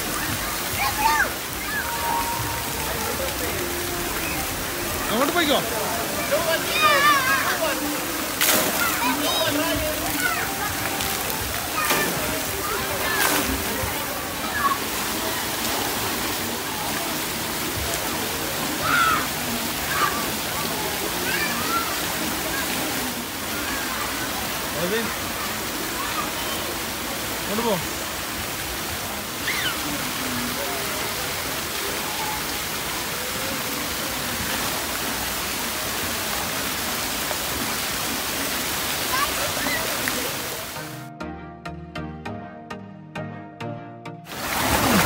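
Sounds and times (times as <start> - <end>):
children's voices: 0.0 - 5.1, 6.0 - 17.0, 18.6 - 27.0, 38.9 - 40.5
water spraying from fountain jets: 0.0 - 41.0, 44.3 - 45.0.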